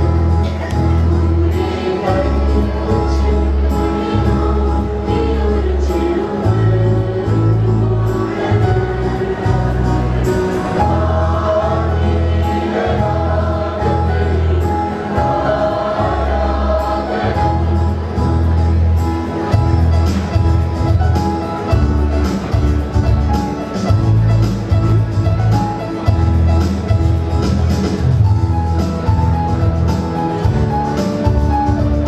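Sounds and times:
sustained low bass notes: 0:00.0 - 0:32.0
mixed choir singing: 0:01.0 - 0:18.5.

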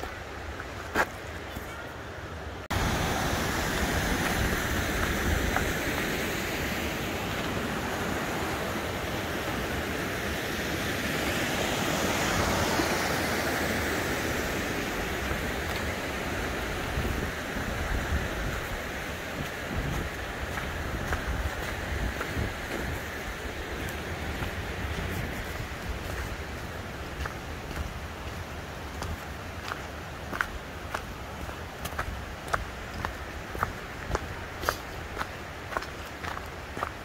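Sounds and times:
wind buffeting microphone: 0:14.3 - 0:34.2.

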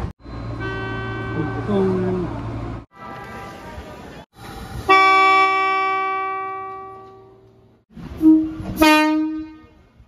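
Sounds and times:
train horn: 0:04.9 - 0:07.4, 0:08.2 - 0:09.9.

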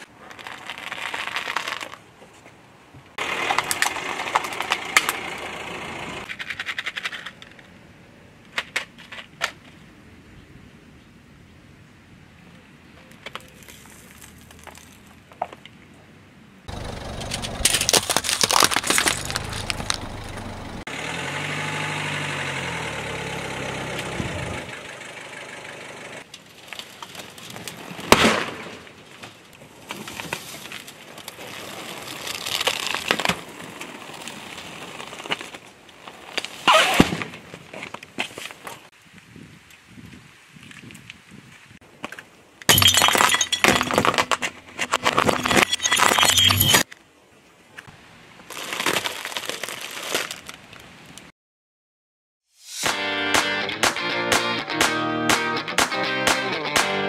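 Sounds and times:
car engine running: 0:03.2 - 0:06.3, 0:16.7 - 0:18.2, 0:18.8 - 0:26.2
cardboard box crunching: 0:17.2 - 0:20.4, 0:48.5 - 0:50.6.

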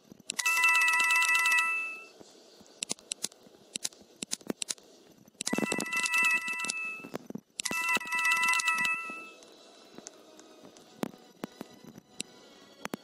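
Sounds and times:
telephone ringing: 0:00.4 - 0:02.1, 0:05.5 - 0:09.4.

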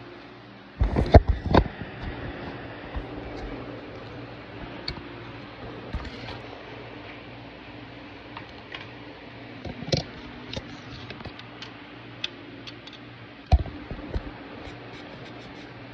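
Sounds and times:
steady low hum: 0:00.0 - 0:15.9.

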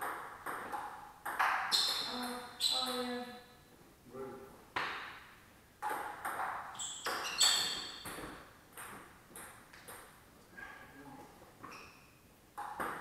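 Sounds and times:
ball bouncing on table: 0:00.0 - 0:02.1, 0:04.8 - 0:05.2, 0:05.8 - 0:10.1, 0:12.6 - 0:13.0
table tennis ball hitting bats: 0:00.0 - 0:03.0, 0:04.8 - 0:10.1, 0:12.6 - 0:13.0.

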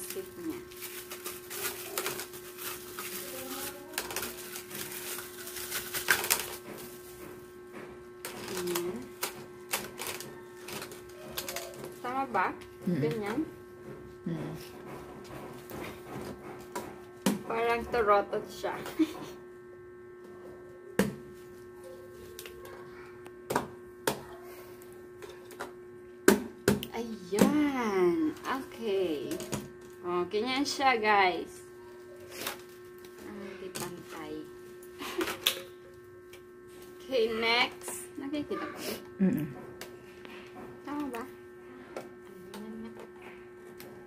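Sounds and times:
plastic bag crinkling: 0:00.0 - 0:07.2, 0:08.2 - 0:12.0
steady hum: 0:00.0 - 0:44.0.

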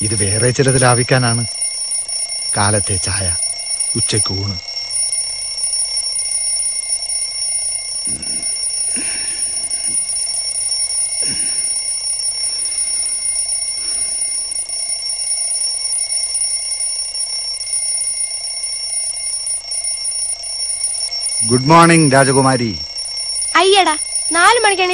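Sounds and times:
high-pitched whine: 0:00.0 - 0:24.9.

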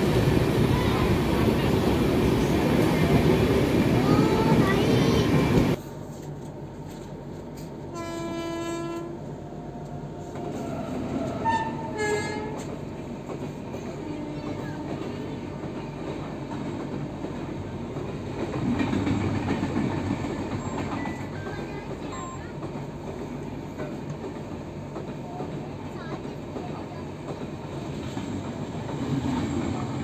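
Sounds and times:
passenger train rushing past: 0:00.0 - 0:05.8, 0:07.9 - 0:30.0
train running noise: 0:00.0 - 0:30.0
locomotive horn blasts: 0:07.9 - 0:09.2, 0:11.4 - 0:12.6.

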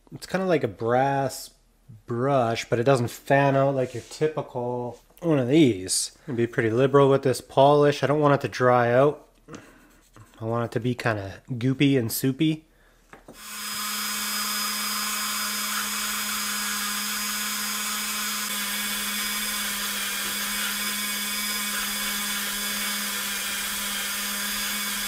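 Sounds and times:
rotary tool humming: 0:13.4 - 0:25.0.

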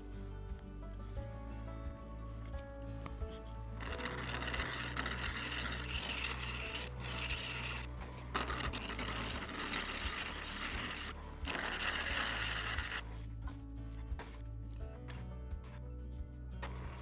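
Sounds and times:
gouge scraping wood on lathe: 0:03.8 - 0:13.2.

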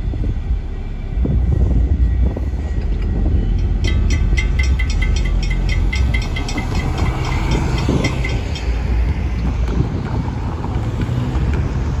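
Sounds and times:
low rumble of cars: 0:00.0 - 0:12.0
wind on microphone: 0:00.0 - 0:12.0
railroad crossing bell ringing: 0:03.3 - 0:09.2.

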